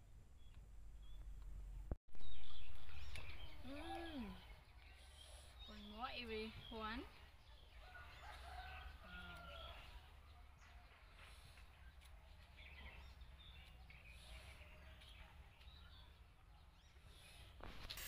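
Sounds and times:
low steady hum: 0:00.0 - 0:07.4
faint bird chirps: 0:00.4 - 0:17.6.

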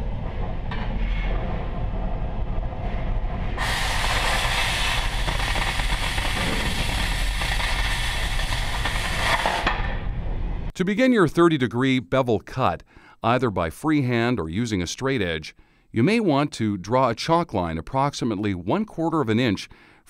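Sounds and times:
torch flame rumbling: 0:00.0 - 0:10.7
cutting torch jet hissing: 0:03.4 - 0:10.0.

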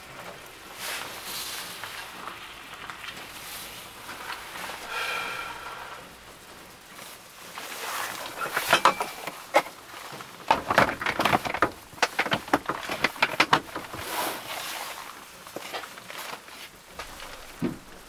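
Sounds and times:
clothing rustling: 0:07.0 - 0:18.0
plastic box knocking and clattering: 0:10.4 - 0:14.2, 0:17.0 - 0:18.0.

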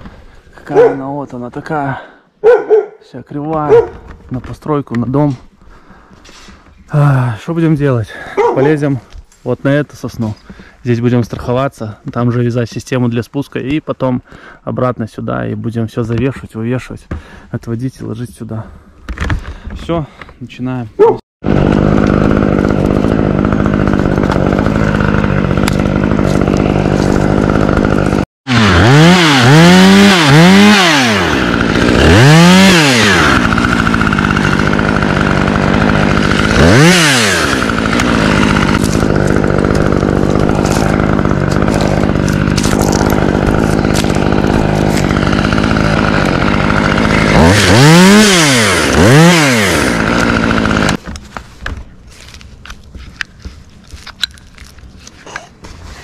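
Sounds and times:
chainsaw revving: 0:21.4 - 0:51.0.

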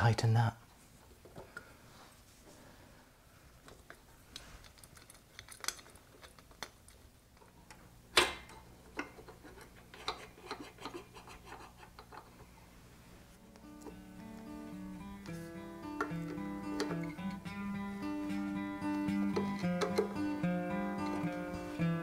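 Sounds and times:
metallic clicks and scrapes: 0:03.7 - 0:07.1, 0:08.9 - 0:12.5.

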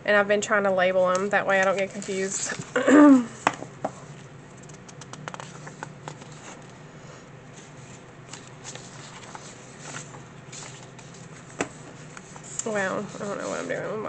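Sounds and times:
paper sheets rustling: 0:01.0 - 0:02.8, 0:04.1 - 0:06.8, 0:07.5 - 0:14.0.

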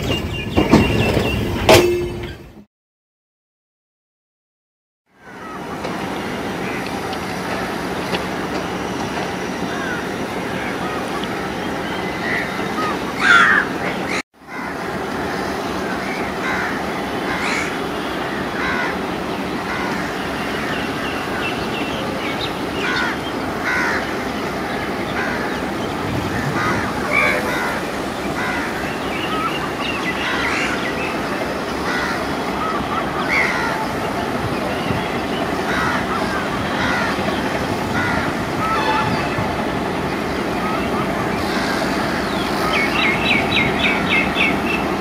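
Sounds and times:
steady background noise: 0:05.2 - 0:45.0
crows cawing: 0:09.7 - 0:10.8, 0:12.2 - 0:20.8, 0:22.8 - 0:24.2, 0:26.2 - 0:29.5, 0:30.2 - 0:30.9, 0:31.8 - 0:33.9, 0:35.6 - 0:37.3, 0:37.9 - 0:39.0.

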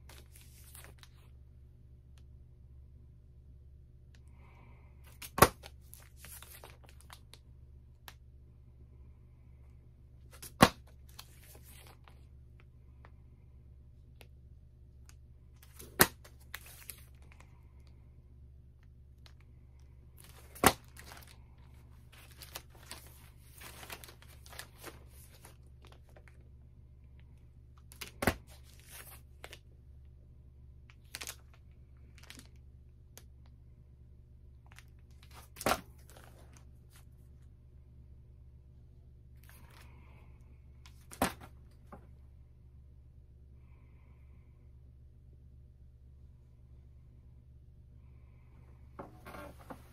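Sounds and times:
plastic sleeves crinkling: 0:00.0 - 0:01.3, 0:05.1 - 0:07.4, 0:10.2 - 0:12.2, 0:15.0 - 0:17.9, 0:20.2 - 0:26.4, 0:27.8 - 0:29.6, 0:30.9 - 0:32.6
low steady hum: 0:00.0 - 0:49.9.

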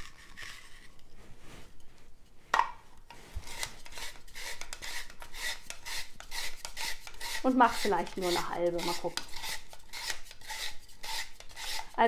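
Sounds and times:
spiral cutter shaving onion: 0:03.3 - 0:12.0.

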